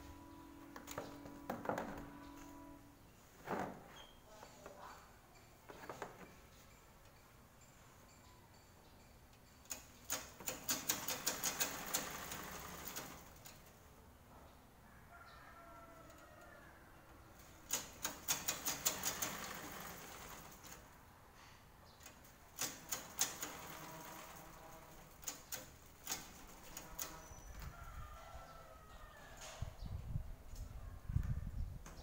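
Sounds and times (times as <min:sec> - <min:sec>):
sewing machine stitching: 0:09.7 - 0:13.7, 0:17.6 - 0:20.9, 0:22.6 - 0:27.4.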